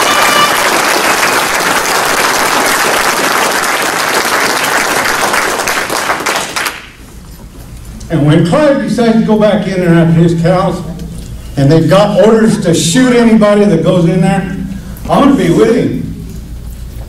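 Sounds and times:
crowd applauding: 0:00.0 - 0:07.0.

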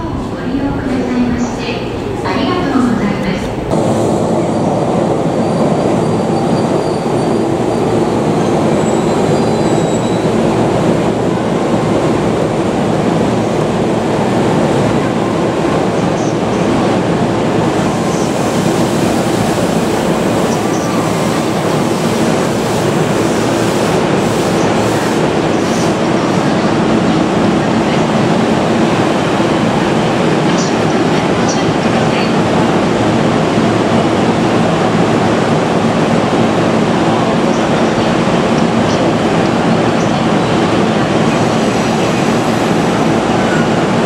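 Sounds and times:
electric train rumbling: 0:00.0 - 0:44.0
high wheel and brake squeals: 0:05.4 - 0:10.4.

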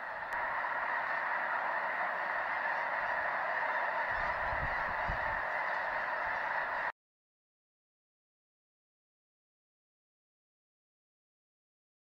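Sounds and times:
geese honking: 0:00.0 - 0:06.9.

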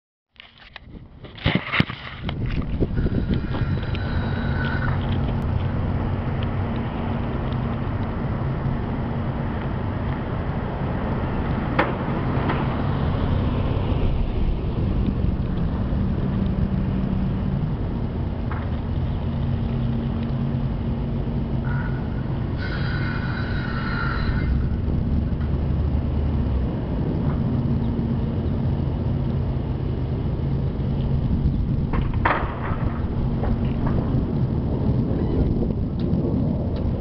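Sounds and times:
truck engine rumbling: 0:00.7 - 0:37.0
high squeal: 0:02.8 - 0:05.3, 0:21.7 - 0:24.8, 0:35.1 - 0:35.5.

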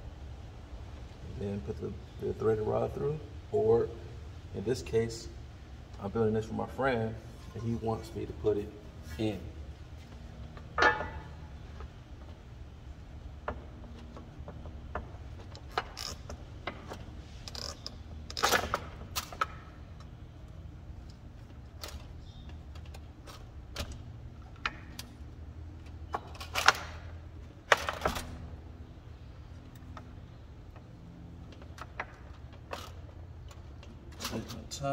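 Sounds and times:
metal clatters: 0:10.6 - 0:11.5.

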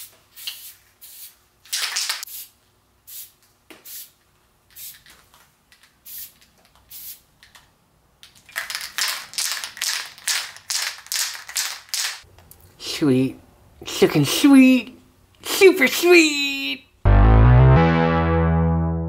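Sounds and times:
spray paint can hissing: 0:00.4 - 0:02.5, 0:03.1 - 0:05.1, 0:06.0 - 0:07.2, 0:08.7 - 0:12.2.

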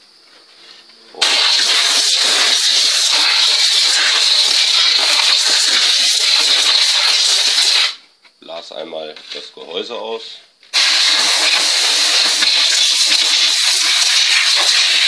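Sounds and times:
compressed air blow gun hissing: 0:01.2 - 0:08.0, 0:10.7 - 0:15.0.

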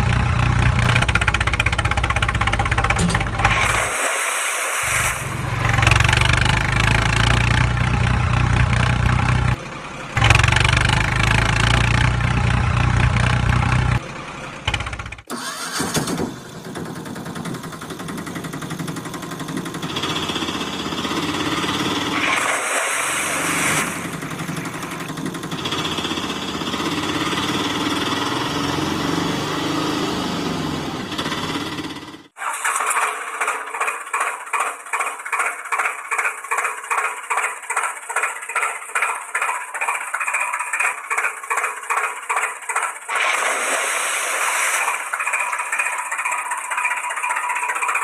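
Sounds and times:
engine with high whine: 0:00.0 - 0:32.4
low engine running: 0:05.0 - 0:15.6, 0:16.2 - 0:32.4, 0:33.4 - 0:48.0.

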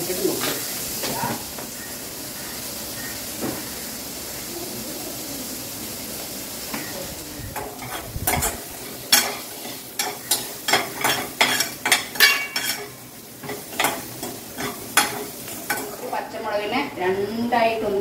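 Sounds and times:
onion sizzling in pan: 0:00.0 - 0:18.0
spoon scraping and knocking pan: 0:07.6 - 0:16.1.

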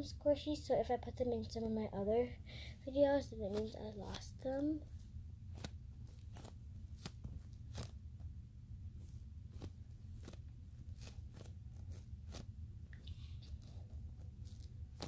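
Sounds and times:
foam toy squeezed crackling: 0:03.5 - 0:08.1, 0:09.0 - 0:15.0.

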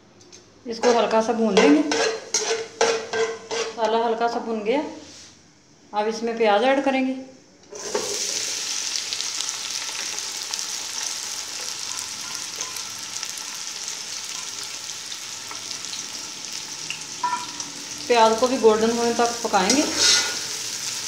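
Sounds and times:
onions sizzling in hot oil: 0:07.7 - 0:21.0.

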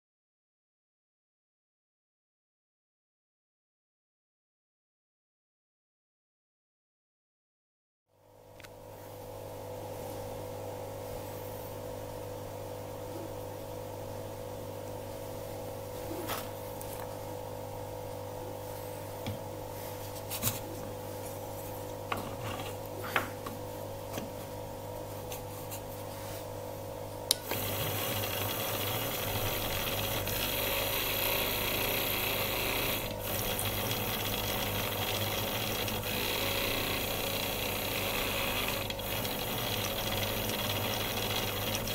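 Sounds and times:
machine humming: 0:27.3 - 0:41.9
machine running: 0:27.4 - 0:41.9.

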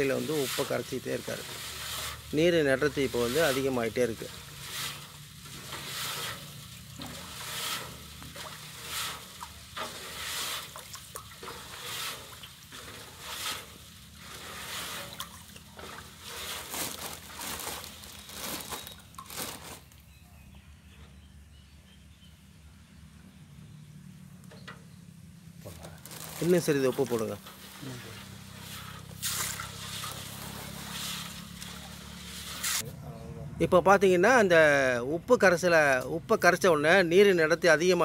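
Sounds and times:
water sloshing in metal basin: 0:00.0 - 0:19.4, 0:27.0 - 0:32.8.

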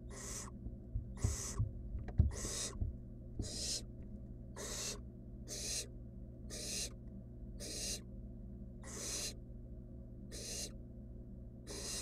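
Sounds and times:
owl nestlings rasping hiss: 0:00.0 - 0:00.6, 0:01.2 - 0:01.6, 0:02.3 - 0:02.8, 0:03.4 - 0:03.9, 0:04.6 - 0:05.9, 0:06.5 - 0:07.0, 0:07.6 - 0:08.0, 0:08.8 - 0:09.4, 0:10.3 - 0:10.8, 0:11.7 - 0:12.0.

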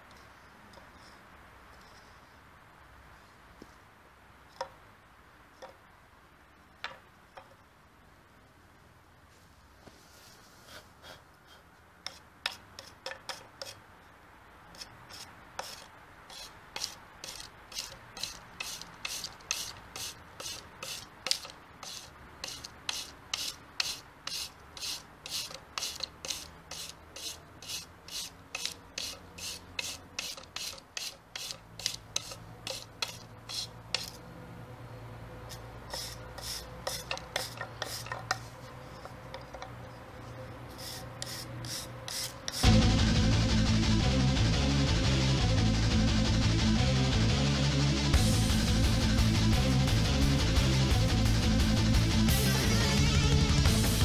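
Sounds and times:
wire brush scrubbing wood: 0:10.4 - 0:13.8, 0:14.8 - 0:34.2, 0:35.9 - 0:39.7, 0:40.7 - 0:42.7.

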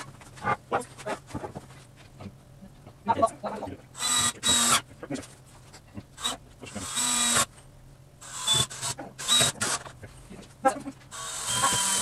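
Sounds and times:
cordless drill driving screws: 0:04.0 - 0:04.8, 0:06.2 - 0:07.5, 0:08.2 - 0:09.9, 0:11.1 - 0:12.0.

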